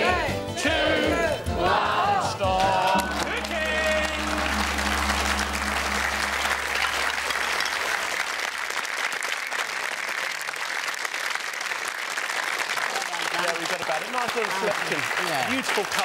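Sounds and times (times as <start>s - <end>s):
music: 0.0s - 7.9s
studio audience applauding: 2.5s - 16.0s.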